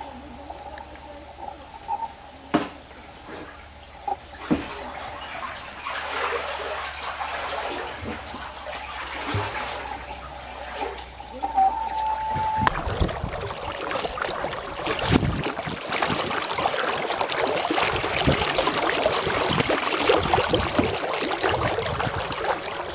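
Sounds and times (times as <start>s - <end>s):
paddle splashing in echoing tunnel: 3.3s - 11.3s, 12.6s - 22.9s.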